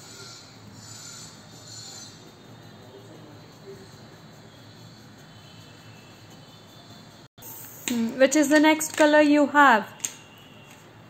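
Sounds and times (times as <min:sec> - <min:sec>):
pencil scratching on paper: 0:00.0 - 0:02.3.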